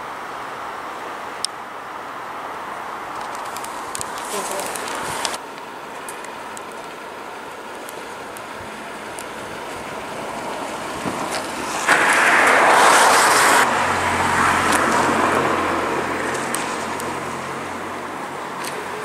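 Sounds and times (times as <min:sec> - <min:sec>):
low steady engine hum: 0:00.0 - 0:19.0
loud vehicle rush: 0:07.9 - 0:19.0.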